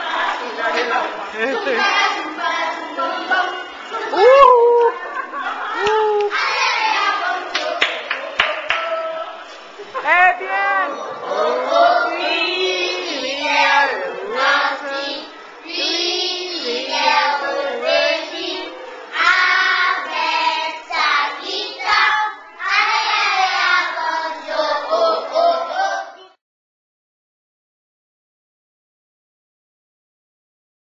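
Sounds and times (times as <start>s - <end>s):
children singing together: 1.5s - 4.1s, 5.4s - 7.8s, 11.0s - 26.4s.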